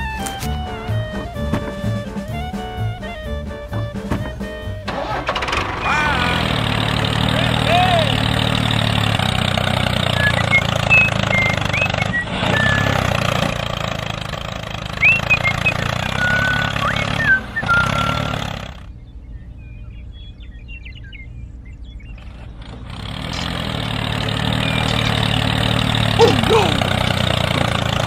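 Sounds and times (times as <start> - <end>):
small engine running: 0.0 - 19.0, 22.1 - 28.0
bird chirps: 9.9 - 13.2, 14.9 - 22.7, 23.3 - 27.0.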